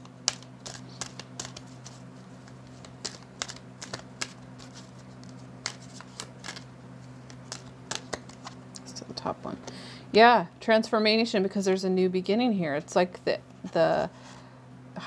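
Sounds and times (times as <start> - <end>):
cards being shuffled: 0.0 - 8.6.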